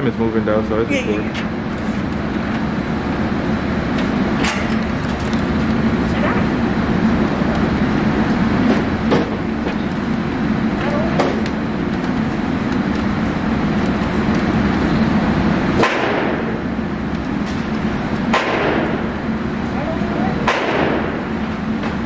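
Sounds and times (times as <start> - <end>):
ventilation drone: 0.0 - 22.0
gunshots: 15.8 - 16.5, 18.3 - 19.0, 20.4 - 21.2.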